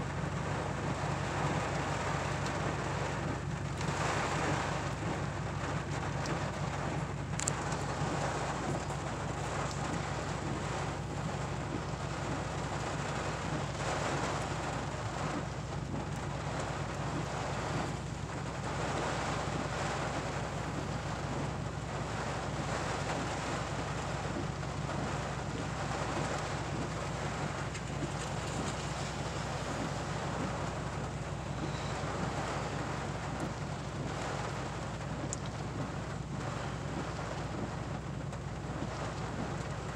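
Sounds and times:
rain and wind on truck: 0.0s - 39.9s.

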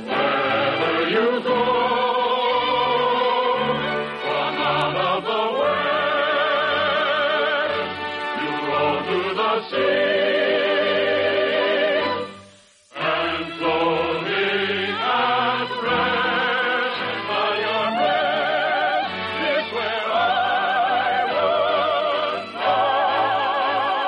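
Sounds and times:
orchestral accompaniment: 0.0s - 24.0s
operetta singing: 13.0s - 24.0s.

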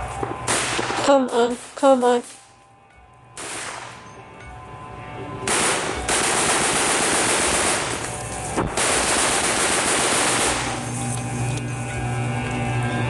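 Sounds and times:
automatic gunfire: 0.5s - 1.7s, 3.4s - 4.0s, 5.5s - 8.1s, 8.7s - 10.9s.

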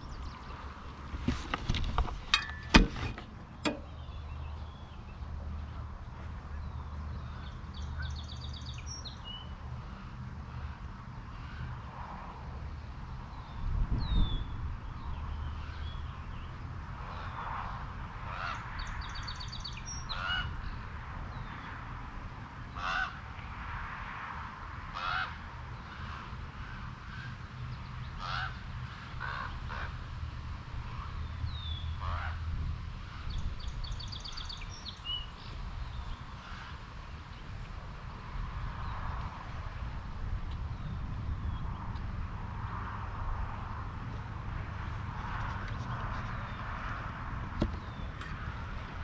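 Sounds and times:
steady low rumble: 30.4s - 49.0s.

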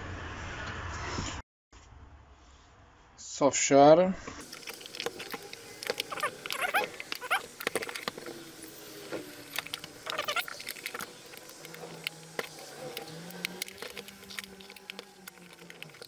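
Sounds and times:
plastic rubbing squeaks: 4.4s - 16.0s.

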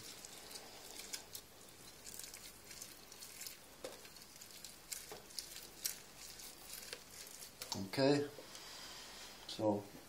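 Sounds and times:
orange squishing on juicer: 0.0s - 8.0s.

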